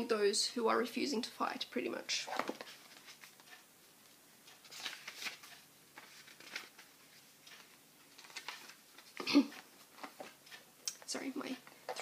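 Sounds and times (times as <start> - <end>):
paper pages rustling: 2.3 - 10.6.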